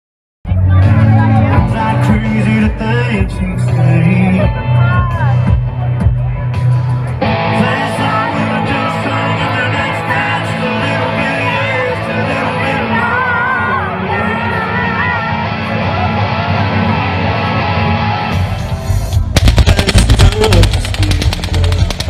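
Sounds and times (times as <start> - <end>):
crowd singing and yelling: 0.5 - 19.2
live band music: 0.5 - 22.0
automatic gunfire: 19.4 - 22.0.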